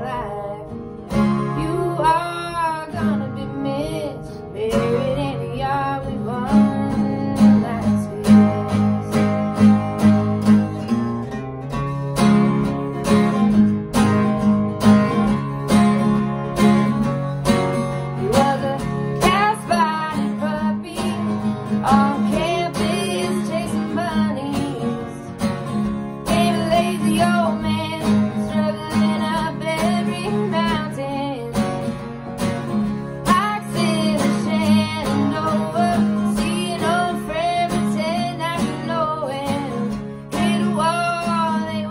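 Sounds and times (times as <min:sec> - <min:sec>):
person singing: 0:00.0 - 0:00.7, 0:01.4 - 0:09.3, 0:18.1 - 0:25.3, 0:26.2 - 0:31.8, 0:33.2 - 0:41.9
acoustic guitars strumming: 0:00.0 - 0:41.9.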